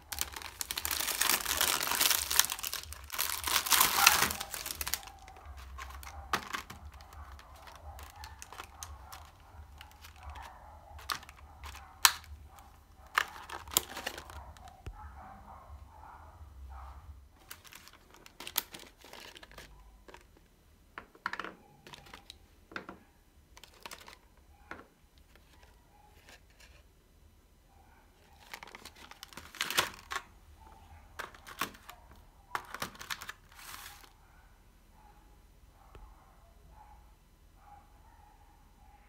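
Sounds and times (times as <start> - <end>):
plastic tray crinkling and clicking: 0.1 - 14.9, 17.4 - 23.0, 23.6 - 26.7, 28.3 - 30.3, 31.2 - 34.1.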